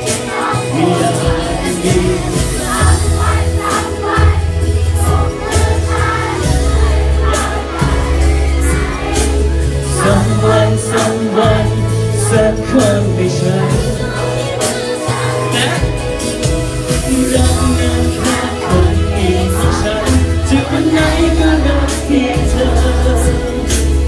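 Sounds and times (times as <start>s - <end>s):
man singing into a microphone: 0.0s - 2.9s, 9.8s - 15.9s, 16.9s - 24.0s
bass line: 0.0s - 24.0s
drum beat: 0.0s - 24.0s.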